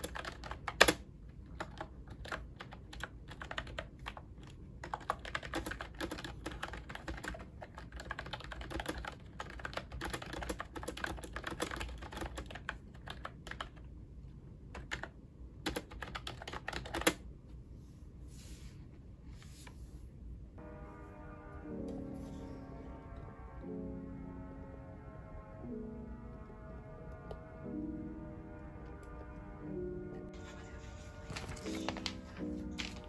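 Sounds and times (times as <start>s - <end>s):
fast typing on a keyboard: 0.0s - 13.9s, 14.7s - 17.2s.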